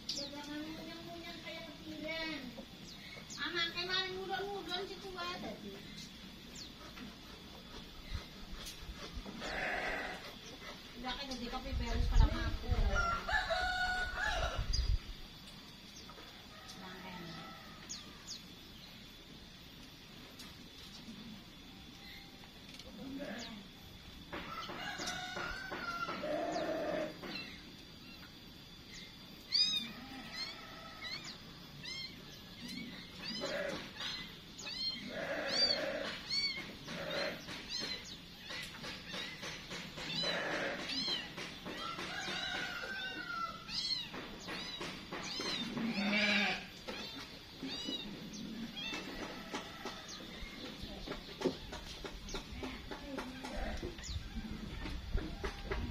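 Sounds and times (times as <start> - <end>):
small birds chirping: 0.0 - 55.9
low drawn-out animal calls: 26.2 - 27.2, 29.5 - 37.5.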